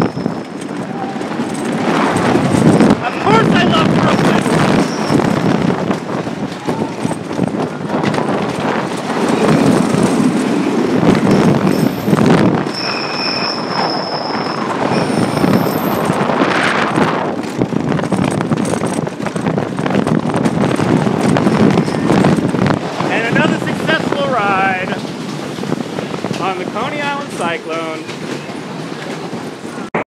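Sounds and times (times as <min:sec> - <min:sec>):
high-pitched wheel squeal: 0:00.0 - 0:01.1, 0:04.2 - 0:05.4, 0:11.2 - 0:16.1
roller coaster rumbling on track: 0:00.0 - 0:30.0.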